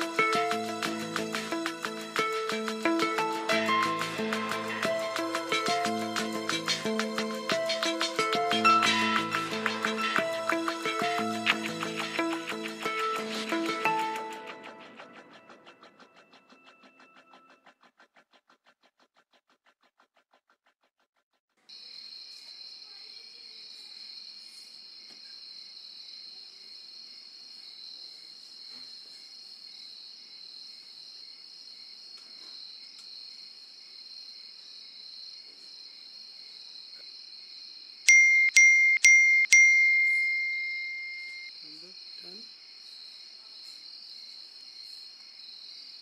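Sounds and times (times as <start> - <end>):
mobile phone message chimes: 38.1 - 41.5.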